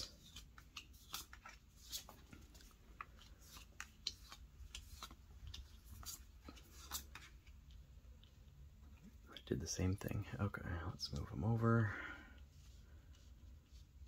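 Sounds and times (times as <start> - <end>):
cards laid on cloth-covered table: 0.0 - 14.0.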